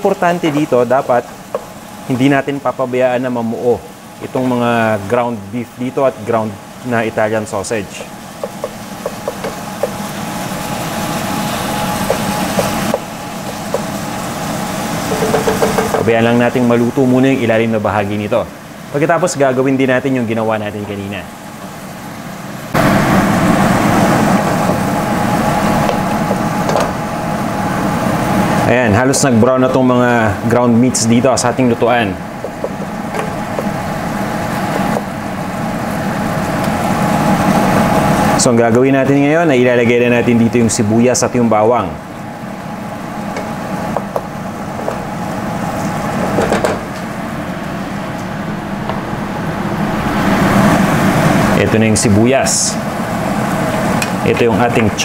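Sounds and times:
meat sizzling in a pot: 0.1 - 2.7, 7.4 - 16.1, 21.5 - 28.6
wooden spoon stirring and scraping: 8.0 - 14.0, 15.0 - 16.0
wooden spoon scraping metal pot: 15.0 - 16.1.

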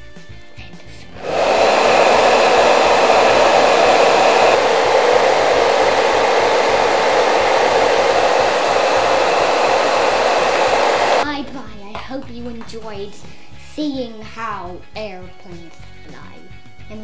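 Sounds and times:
hair dryer blowing air: 1.0 - 11.3.

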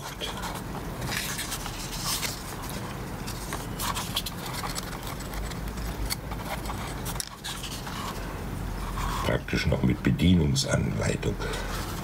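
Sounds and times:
paper leaflet rustling: 0.0 - 9.4
low background hum: 0.0 - 12.0.

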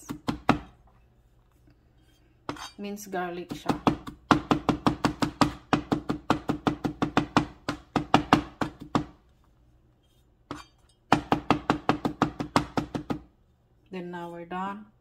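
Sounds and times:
knife chopping on cutting board: 0.0 - 0.8, 3.4 - 9.2, 10.5 - 13.3.

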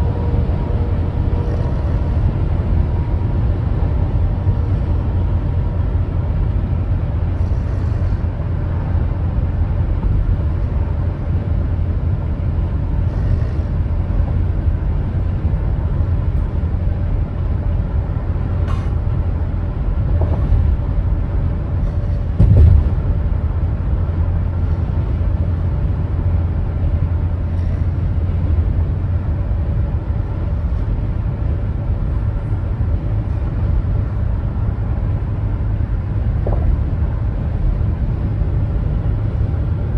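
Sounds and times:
moving vehicle rumble: 0.0 - 39.9
vehicle bump: 20.0 - 21.2, 21.8 - 23.7, 36.2 - 37.2.

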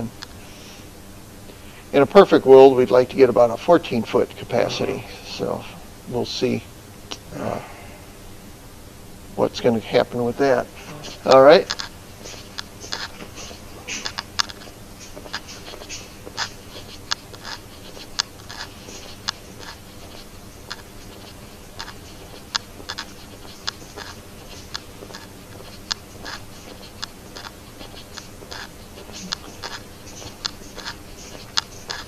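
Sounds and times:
faint steady hum: 0.0 - 32.0
footsteps on concrete floor: 11.0 - 32.0.

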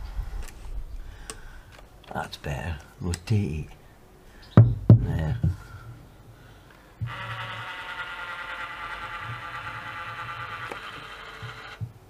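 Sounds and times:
electric caulking gun motor whine: 7.0 - 12.0.

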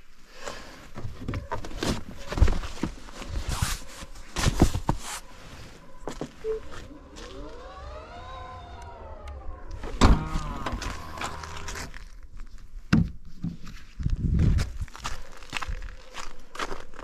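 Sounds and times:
small electric motor whining: 7.0 - 11.9.

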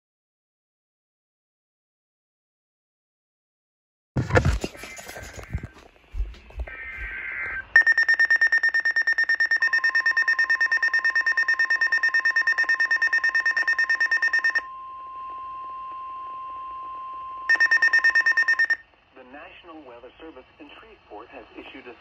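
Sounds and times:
steady alarm tone: 4.6 - 18.8
rapid pulsing high beep: 6.7 - 14.9, 17.4 - 18.8.

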